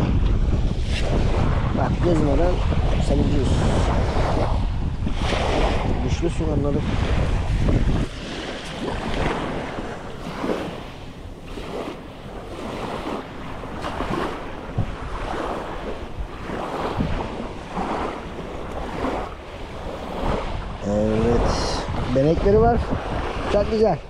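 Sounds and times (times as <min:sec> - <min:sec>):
wind rumbling on microphone: 0:00.0 - 0:24.0
small waves over pebble shore: 0:08.0 - 0:20.6.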